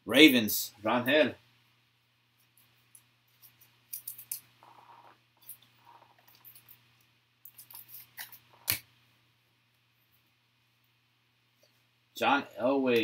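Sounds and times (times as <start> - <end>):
cards sliding and flicking: 7.5 - 8.9.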